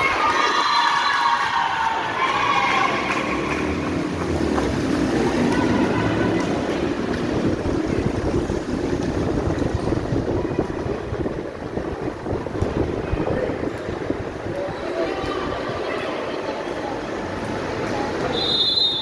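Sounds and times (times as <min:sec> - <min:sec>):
team shouting a cheer: 0:00.0 - 0:03.8, 0:05.4 - 0:06.6
murmur of voices: 0:00.0 - 0:19.0
steady rushing background noise: 0:00.0 - 0:19.0.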